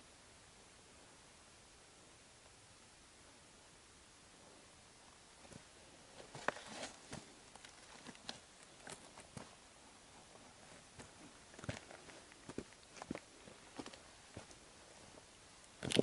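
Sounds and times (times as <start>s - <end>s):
footsteps on stony ground: 5.4s - 14.6s.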